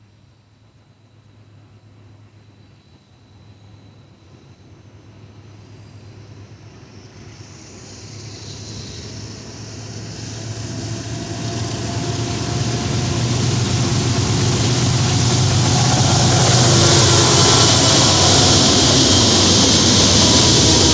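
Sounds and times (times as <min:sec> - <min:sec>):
diesel locomotive engine drone: 0:03.4 - 0:20.9
wheel-on-rail rumbling: 0:08.1 - 0:20.9.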